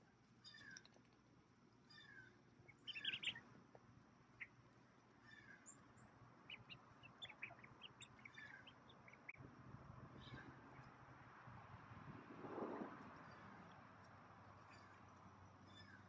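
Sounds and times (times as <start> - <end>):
ducklings peeping: 1.9 - 3.4, 6.4 - 9.4.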